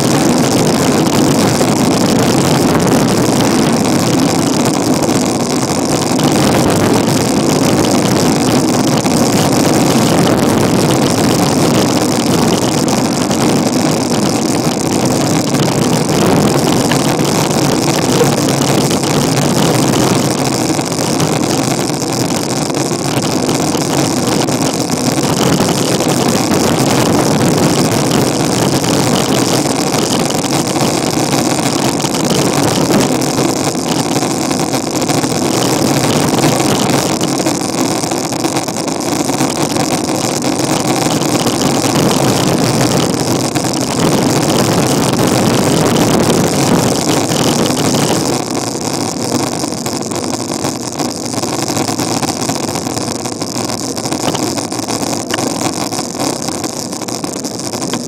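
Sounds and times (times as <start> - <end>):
wind buffeting microphone: 0.0 - 37.6
bicycle rolling on asphalt: 0.0 - 58.0.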